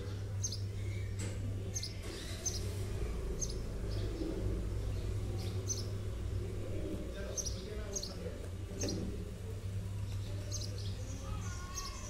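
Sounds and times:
small bird chirping: 0.0s - 2.8s, 3.4s - 9.1s
steady low hum: 0.0s - 11.8s.

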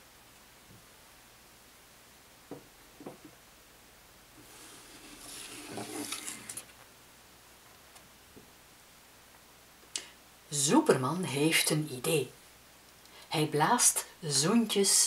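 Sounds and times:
light knocks on wood: 2.5s - 3.3s
paper card sliding out of frame: 4.4s - 6.7s.

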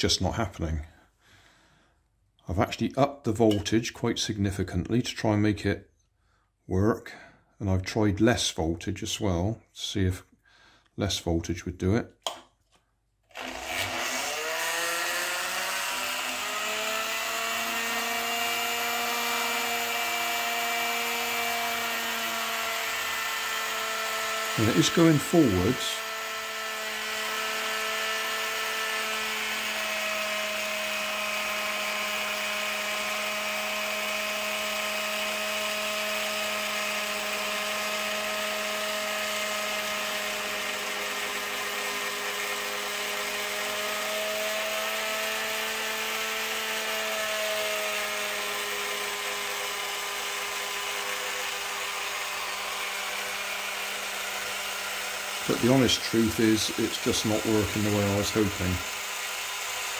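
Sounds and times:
small electric motor whining: 13.3s - 59.9s.

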